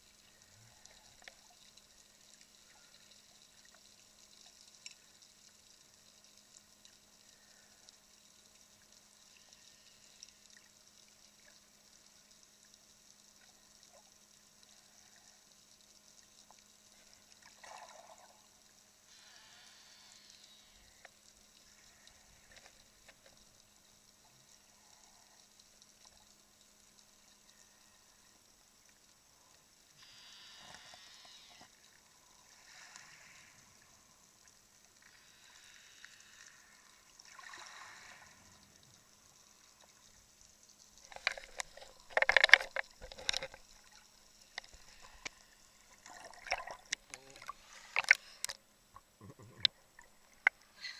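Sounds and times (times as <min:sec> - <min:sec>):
faint underwater hum: 0:00.0 - 0:50.9
water swishes: 0:30.6 - 0:48.8.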